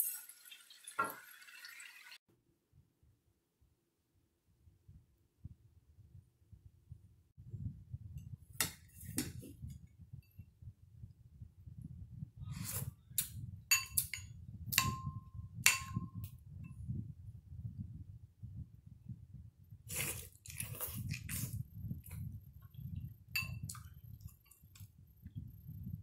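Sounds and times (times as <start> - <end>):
spoon clinking against bowl: 13.7 - 16.2, 23.4 - 23.8
mouth sounds of eating: 19.8 - 22.3.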